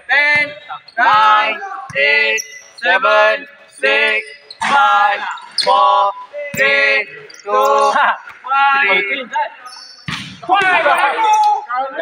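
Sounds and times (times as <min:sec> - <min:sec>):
basketball bouncing on court: 0:00.2 - 0:02.3, 0:10.0 - 0:10.8
man calling out numbers: 0:04.6 - 0:09.8, 0:10.4 - 0:12.0.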